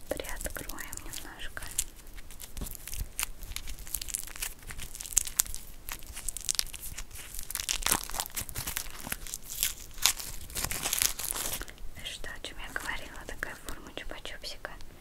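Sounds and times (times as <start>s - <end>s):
plastic wrap crinkling and tearing: 0.0s - 11.8s.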